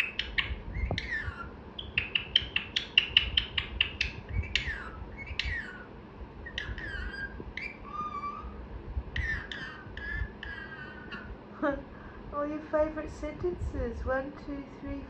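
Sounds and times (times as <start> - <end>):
parrot chirping and whistling: 0.0 - 11.3.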